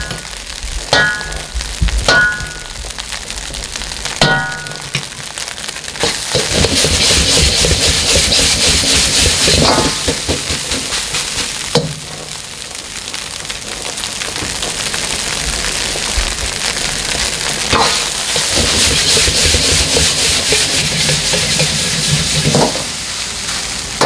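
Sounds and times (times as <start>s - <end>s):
rice sizzling in a wok: 0.0s - 24.0s
ladle clanking on wok: 0.9s - 1.5s, 17.7s - 22.9s
metal ladle scraping a wok: 6.0s - 11.6s, 17.7s - 22.9s.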